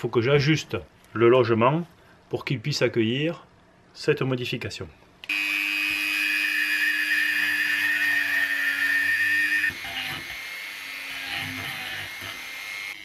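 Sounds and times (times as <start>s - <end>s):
rotary tool grinding plastic: 6.2s - 13.0s.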